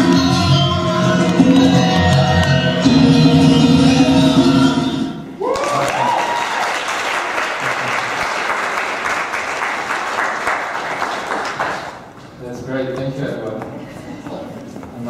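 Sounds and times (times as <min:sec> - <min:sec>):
person whooping: 0:05.4 - 0:06.8
audience applauding: 0:05.4 - 0:12.1.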